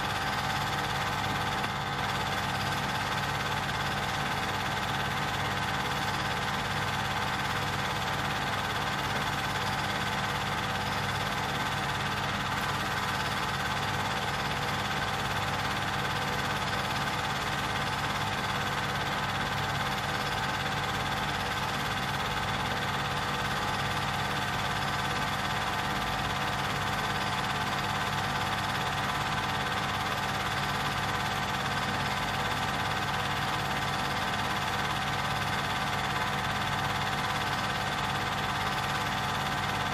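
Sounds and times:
film projector motor hum: 0.0 - 39.9.

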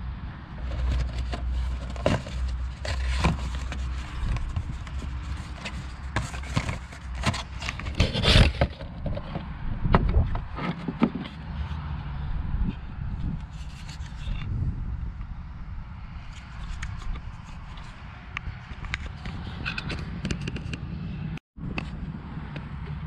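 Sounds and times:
tools handling parts: 0.6 - 9.3.

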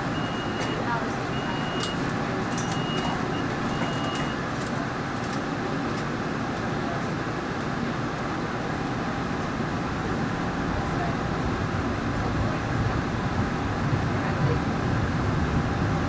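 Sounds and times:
train running in tunnel: 0.0 - 16.0
short high beeps: 0.1 - 2.0, 2.6 - 4.4.

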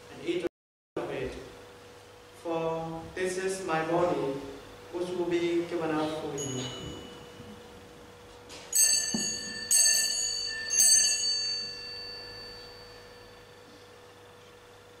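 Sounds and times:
altar bells ringing: 6.3 - 7.9, 8.5 - 14.1.

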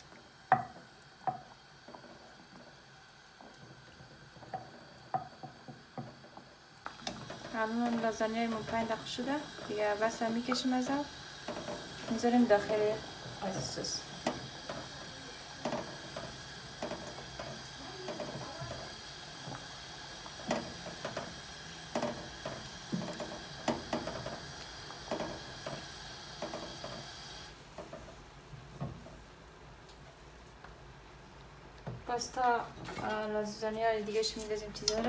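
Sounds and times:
boiling water hissing: 0.0 - 35.0.

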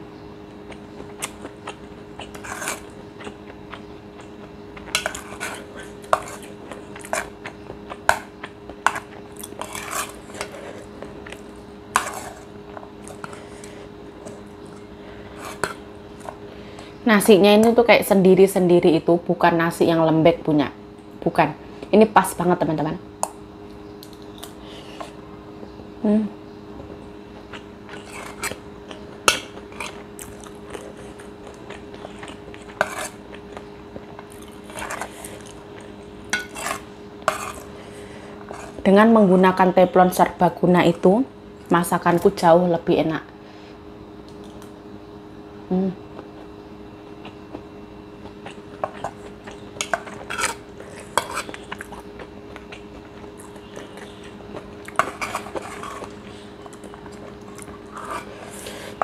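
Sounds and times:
steady hum: 0.0 - 59.0
chewing: 0.5 - 16.4, 26.8 - 38.8, 47.2 - 59.0
spoon scraping on ceramic plate: 2.3 - 2.9, 4.9 - 7.3, 8.8 - 10.9, 11.9 - 12.4, 15.3 - 16.3, 32.0 - 33.2, 36.3 - 37.7, 49.8 - 51.8, 54.9 - 56.2
metal spoon scraping ceramic plate: 36.3 - 37.7.

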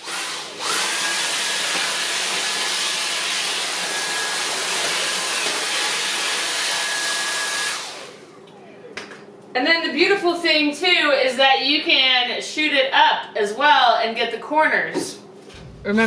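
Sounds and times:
cordless vacuum running: 0.0 - 8.3.

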